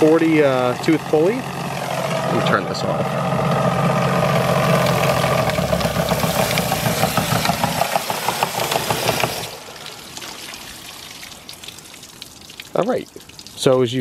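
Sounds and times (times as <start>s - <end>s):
turbine mechanical hum: 0.0s - 9.8s
rapid regular ticking and knocking: 3.3s - 9.6s
water spray: 3.9s - 12.2s.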